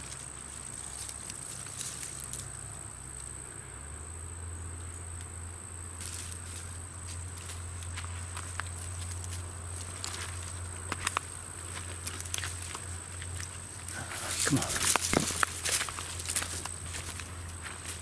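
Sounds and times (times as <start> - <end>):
twigs and leaves rustling: 0.0 - 3.4, 6.0 - 18.0
high-pitched insect trill: 0.0 - 18.0
low steady rumble: 0.0 - 18.0.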